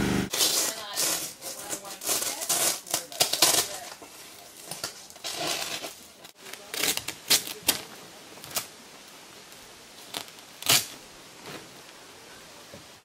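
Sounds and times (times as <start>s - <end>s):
plastic wrap ripping and rustling: 0.3s - 8.8s, 10.0s - 11.0s.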